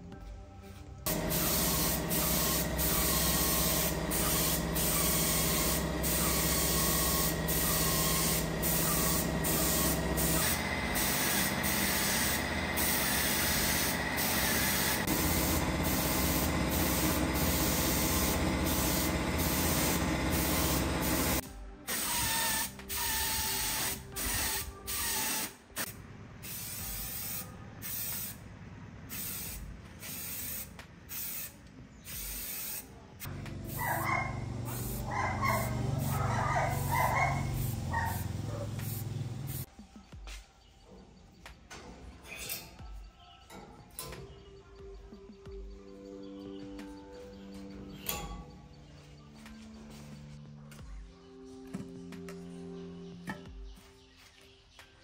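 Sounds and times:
paint spray gun hissing: 1.1s - 25.6s, 26.4s - 28.4s, 29.1s - 39.7s
aerosol spray can bursts: 1.1s - 28.4s, 29.1s - 33.0s, 33.7s - 39.7s.

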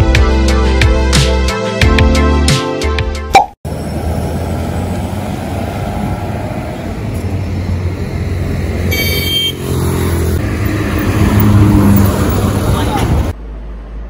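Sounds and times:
road traffic rumble: 3.3s - 14.0s
motorcycle passing: 3.7s - 13.4s
car horn toot: 8.9s - 9.7s.

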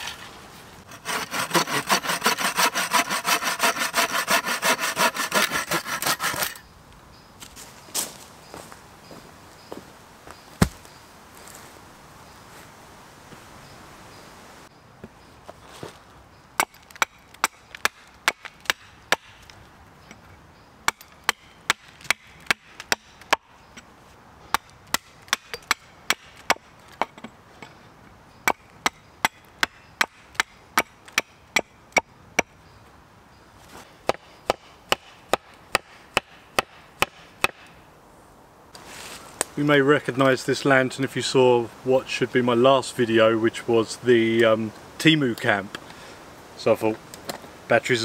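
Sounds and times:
axe chopping wood: 10.6s - 10.9s, 16.6s - 19.4s, 20.9s - 23.5s, 24.5s - 27.3s, 34.0s - 37.7s.

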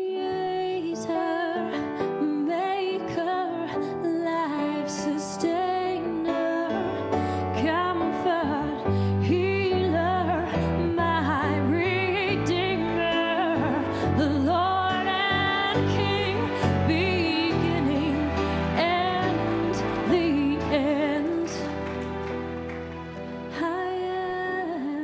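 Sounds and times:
woman singing a ballad: 0.0s - 22.2s, 23.4s - 25.0s
bass: 8.6s - 23.6s
backing band chords: 15.8s - 23.6s.

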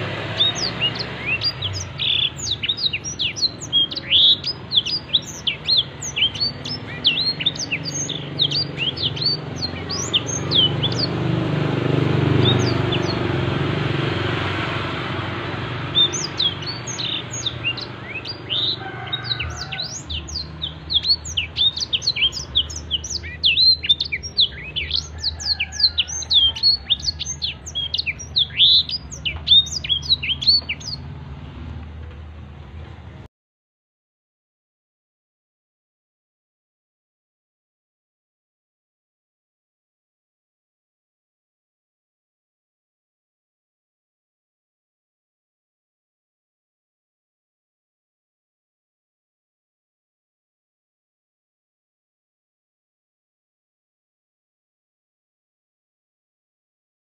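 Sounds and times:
canary singing high chirps: 0.0s - 13.7s, 15.6s - 31.1s.

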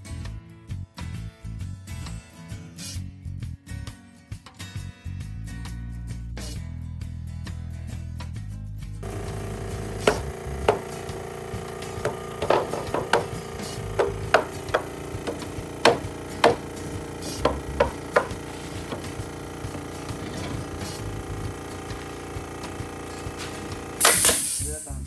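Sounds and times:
hammer striking nails into wood: 9.0s - 21.2s, 23.5s - 24.6s
steady hum: 9.0s - 24.8s.

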